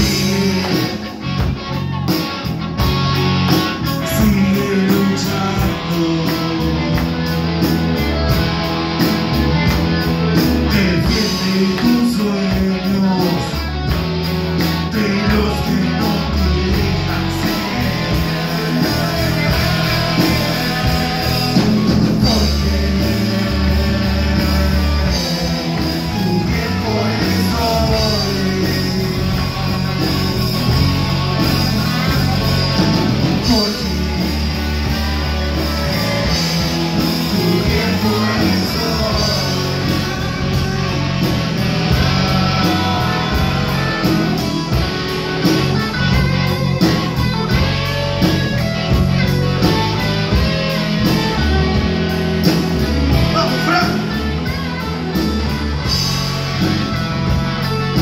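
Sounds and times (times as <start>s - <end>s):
person singing into microphone: 0.0s - 1.1s, 3.9s - 7.0s, 10.6s - 13.7s, 14.8s - 29.6s, 33.4s - 34.1s, 35.7s - 40.2s
rock band playing live: 0.0s - 58.0s.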